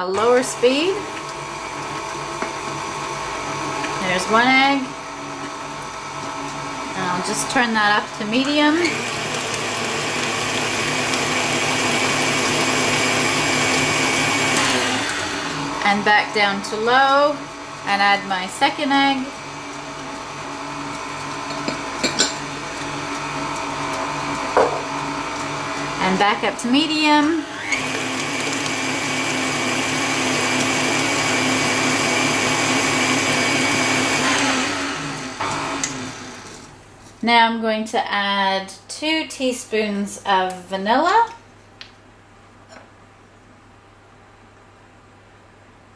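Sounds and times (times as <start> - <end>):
stand mixer running: 0.0 - 36.7.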